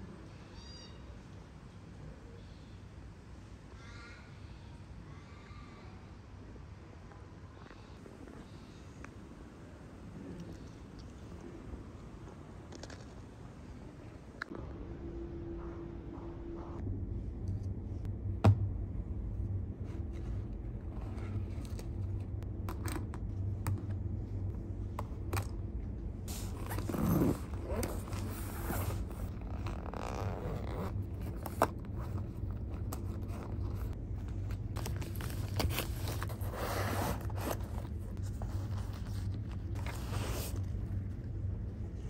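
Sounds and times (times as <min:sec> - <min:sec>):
steady low hum: 0:06.2 - 0:42.0
zipper: 0:26.3 - 0:33.9, 0:35.1 - 0:40.8
fabric bag rustling: 0:26.3 - 0:41.1.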